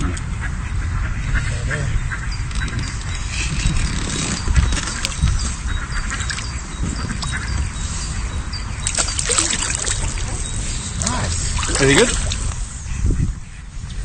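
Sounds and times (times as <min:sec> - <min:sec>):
ducks quacking faintly: 0:00.0 - 0:03.6
water splashing and dripping: 0:08.8 - 0:12.7.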